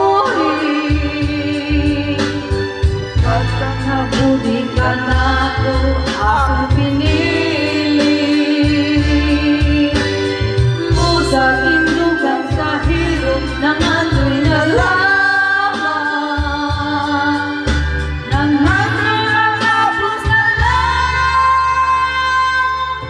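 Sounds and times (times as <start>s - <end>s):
backing track with bass beat: 0.0s - 23.0s
woman singing into microphone: 0.0s - 23.0s.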